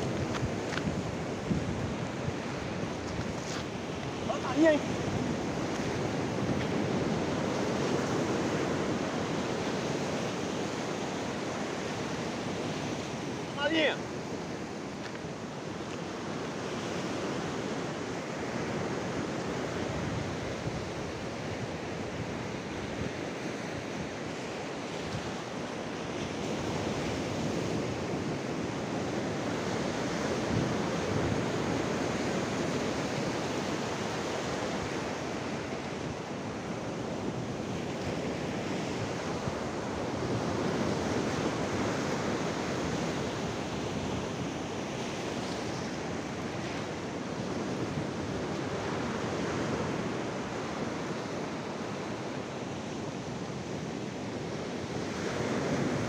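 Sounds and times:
surf breaking on rocks: 0.0 - 9.3, 13.3 - 14.1.

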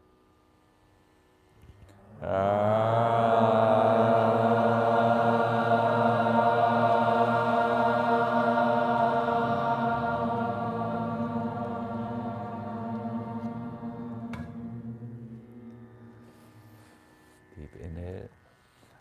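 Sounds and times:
person chanting a low tone: 2.0 - 16.9.

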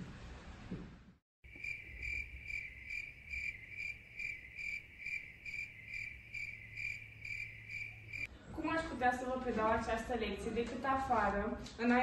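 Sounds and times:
crickets chirping: 1.4 - 8.3.

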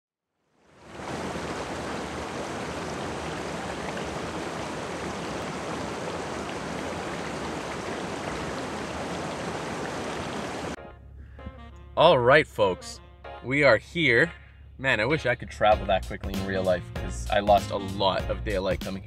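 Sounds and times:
river rushing over rocks: 0.8 - 10.8.

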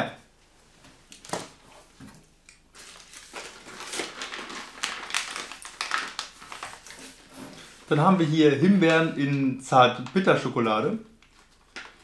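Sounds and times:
snack packaging crinkling: 2.7 - 7.3, 11.2 - 12.0.

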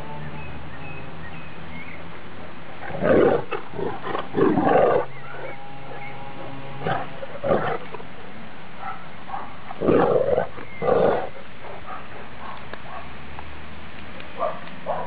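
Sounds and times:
dogs play-growling: 2.8 - 8.1, 9.7 - 12.6.

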